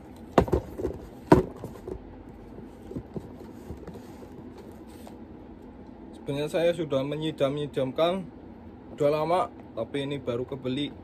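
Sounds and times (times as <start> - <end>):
sneakers knocking on cardboard box: 0.3 - 4.5.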